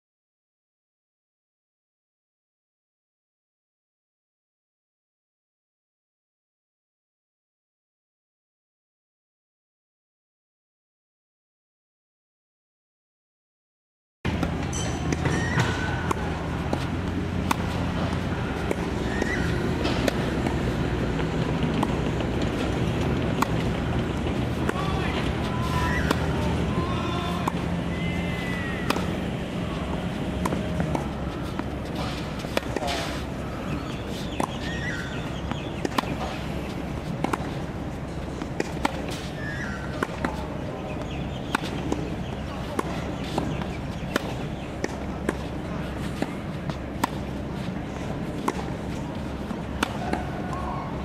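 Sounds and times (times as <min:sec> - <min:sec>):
tennis ball hit and bouncing: 0:14.3 - 0:51.0
steady low rumble: 0:15.9 - 0:39.1.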